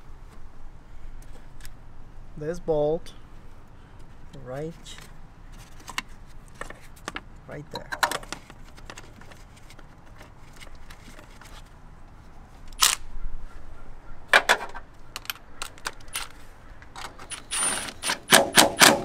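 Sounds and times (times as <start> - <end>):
tool handling clicks and knocks: 4.8 - 11.5, 14.3 - 19.0
power driver whirring: 17.2 - 19.0.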